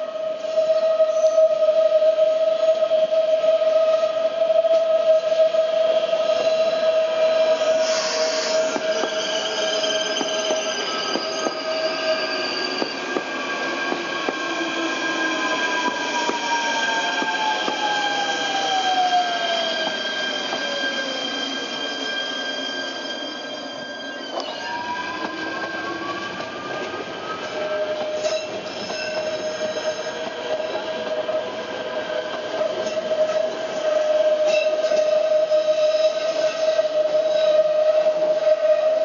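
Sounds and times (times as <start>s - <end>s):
electric train whining: 0.0s - 39.0s
wheels squealing on a curve: 6.3s - 30.8s.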